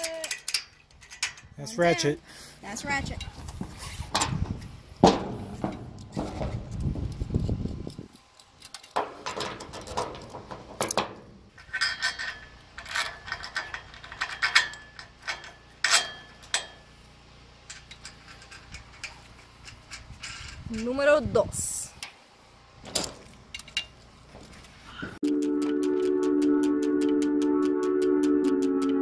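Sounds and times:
metal buckles clicking and clanking: 0:00.0 - 0:01.6, 0:05.0 - 0:07.2, 0:07.8 - 0:16.9, 0:17.6 - 0:21.0, 0:22.8 - 0:24.7.

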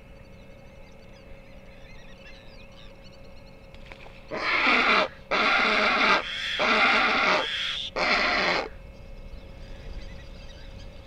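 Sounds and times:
small birds chirping faintly: 0:00.0 - 0:11.0
flamingos calling harshly: 0:04.3 - 0:08.7.

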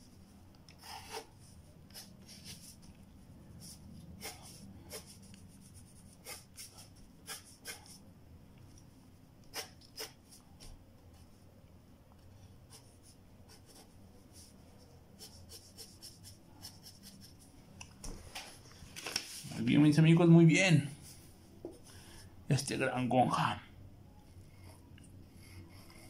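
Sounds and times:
pencil scratching on paper: 0:00.8 - 0:02.9, 0:03.6 - 0:08.0, 0:12.7 - 0:14.6, 0:15.2 - 0:17.5.

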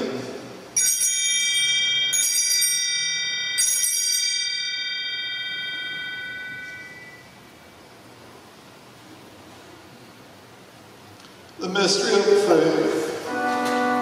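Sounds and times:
altar bell ringing: 0:00.8 - 0:07.5.

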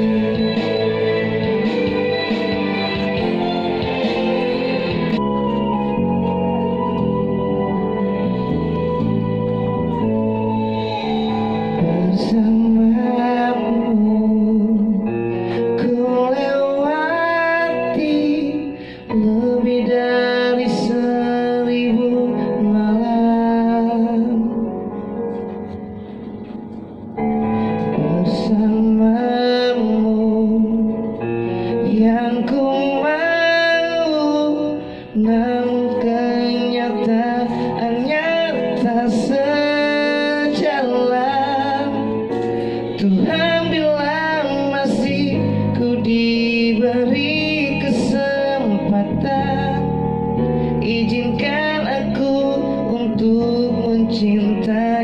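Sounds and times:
man singing into microphone: 0:00.0 - 0:04.4, 0:10.0 - 0:25.4, 0:27.6 - 0:55.0
piano backing: 0:00.0 - 0:55.0.

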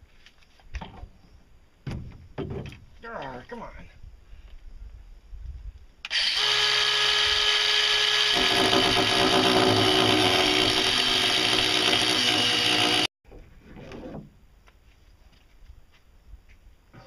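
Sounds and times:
angle grinder grinding metal: 0:06.1 - 0:13.1.

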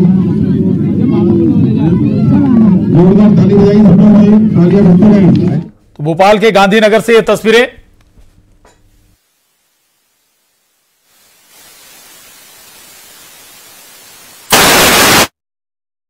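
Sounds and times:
faint steady hiss: 0:08.8 - 0:15.3
burst of static noise: 0:09.1 - 0:15.4.

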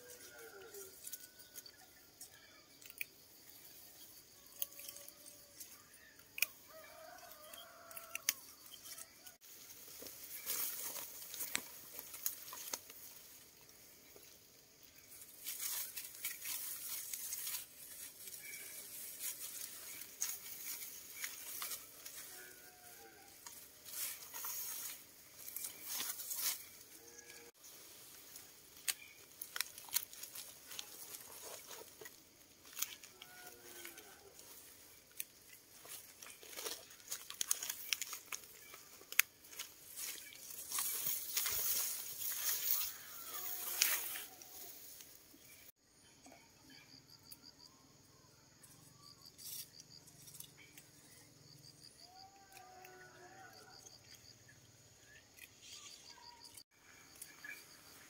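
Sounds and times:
dry rice stalks rustling: 0:08.8 - 0:45.7.

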